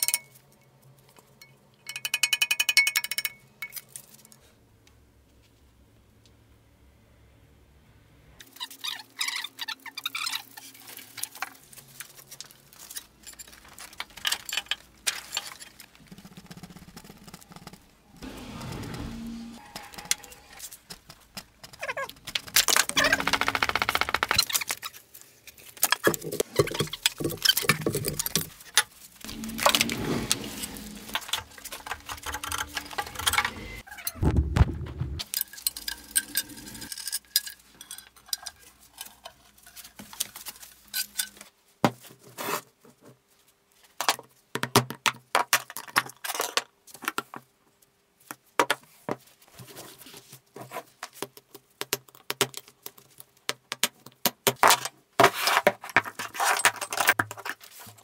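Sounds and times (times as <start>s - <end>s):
metal parts and tools clinking: 0.0s - 0.5s, 10.1s - 16.0s, 22.5s - 34.2s, 35.2s - 41.5s, 56.2s - 57.6s
heavy thuds: 34.2s - 35.2s.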